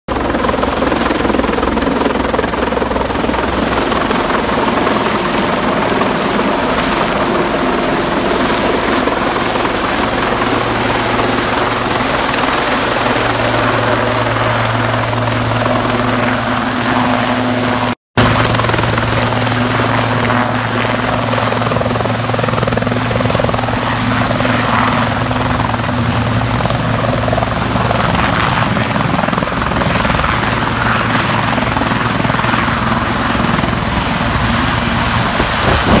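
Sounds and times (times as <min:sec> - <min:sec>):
helicopter engines and rotors: 0:00.1 - 0:36.0
high turbine whine: 0:31.5 - 0:36.0.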